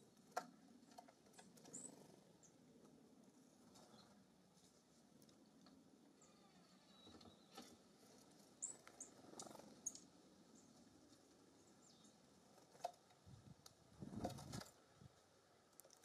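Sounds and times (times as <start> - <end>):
faint high bird chirps: 1.4 - 2.7, 6.1 - 7.8, 8.6 - 10.8.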